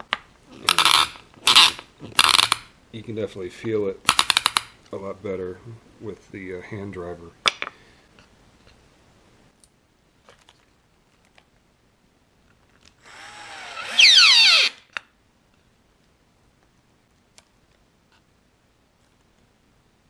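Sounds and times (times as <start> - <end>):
clicks of handling small parts: 3.6 - 4.7
cordless drill whining: 13.0 - 14.9.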